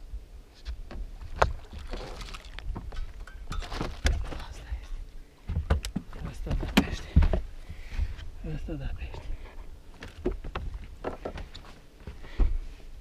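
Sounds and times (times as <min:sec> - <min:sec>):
water splashing: 0:01.2 - 0:04.4.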